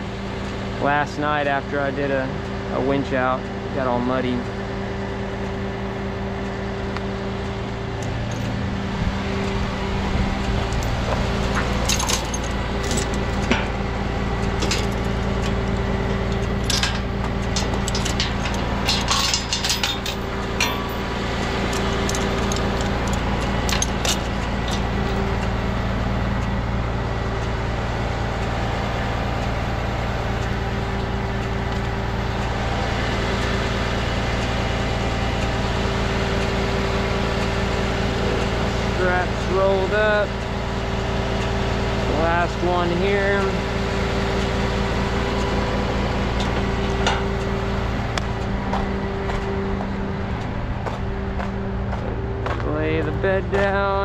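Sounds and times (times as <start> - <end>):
diesel engine idling: 0.0 - 54.0
metallic clinks and rattles: 8.3 - 8.6, 10.7 - 13.8, 14.5 - 15.6, 16.2 - 25.3.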